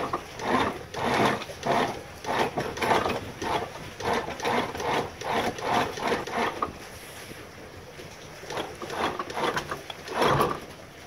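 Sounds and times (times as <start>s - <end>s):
ratcheting deck gear cranked: 8.5s - 10.6s.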